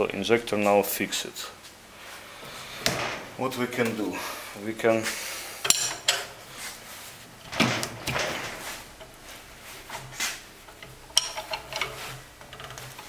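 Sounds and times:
metal tool clinks and scrapes: 10.7s - 13.0s.

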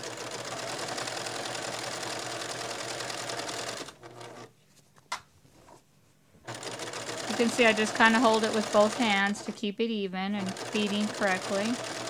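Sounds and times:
sewing machine stitching: 0.0s - 4.5s, 6.5s - 9.7s, 10.4s - 12.0s.

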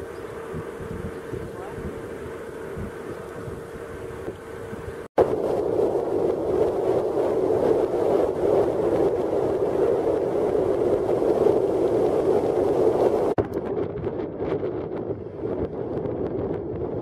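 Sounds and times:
car road and wind noise: 0.0s - 17.0s.

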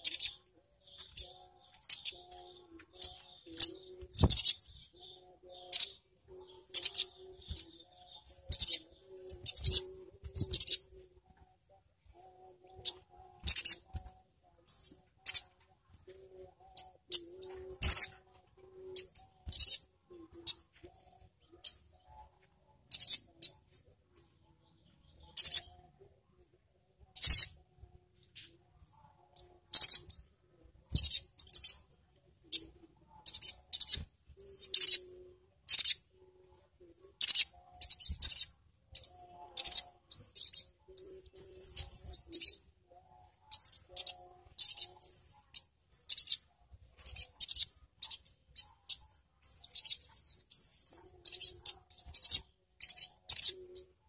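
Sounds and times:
bird chips and twitters: 0.0s - 10.9s, 12.7s - 14.1s, 14.7s - 15.6s, 16.7s - 18.2s, 19.0s - 21.9s, 22.9s - 23.6s, 25.2s - 25.7s, 27.2s - 27.5s, 29.4s - 30.2s, 30.9s - 31.8s, 32.5s - 35.1s, 35.7s - 36.0s, 37.2s - 42.6s, 43.5s - 53.9s.

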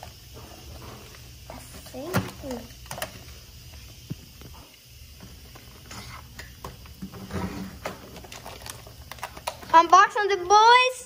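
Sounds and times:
plastic blister pack tearing: 7.8s - 10.1s.

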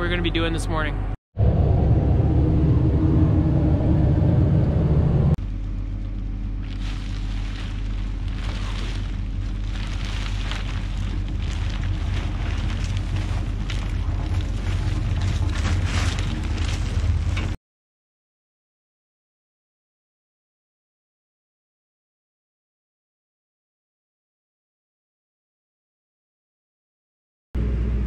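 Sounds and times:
diesel engine droning: 0.0s - 17.6s, 27.6s - 28.0s
plastic sheet crackling: 6.6s - 17.6s.

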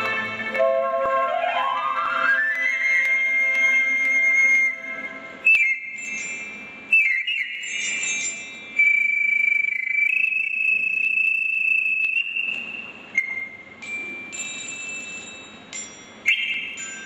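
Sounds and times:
panpipes playing slow melody: 0.0s - 5.4s.

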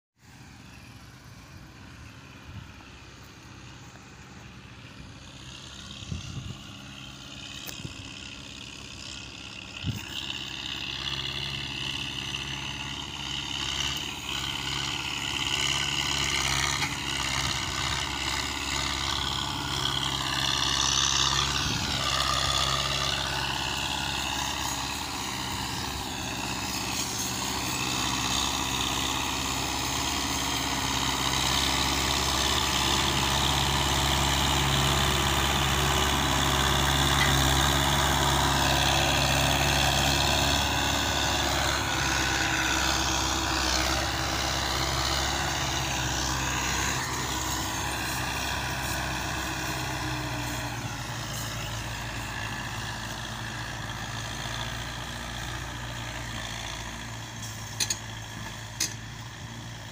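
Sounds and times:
diesel tractor engine running: 0.2s - 59.9s.

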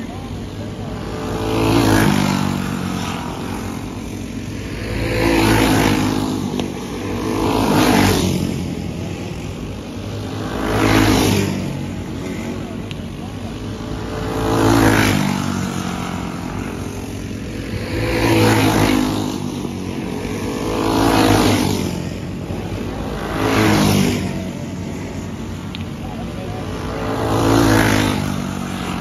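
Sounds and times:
go-kart engines droning: 0.0s - 29.0s
go-karts passing by: 0.0s - 29.0s.

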